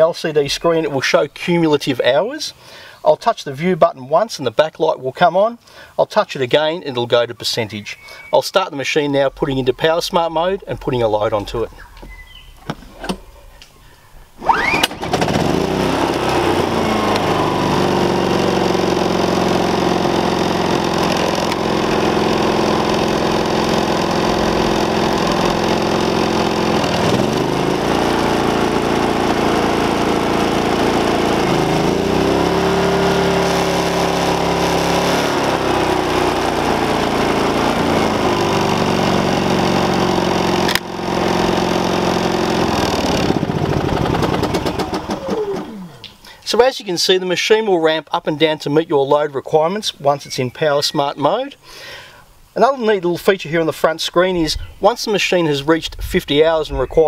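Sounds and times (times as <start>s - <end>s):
generator engine running: 14.4s - 46.2s.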